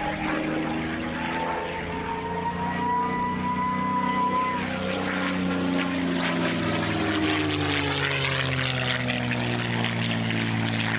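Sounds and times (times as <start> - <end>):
propeller plane engine flyby: 0.0 - 10.9.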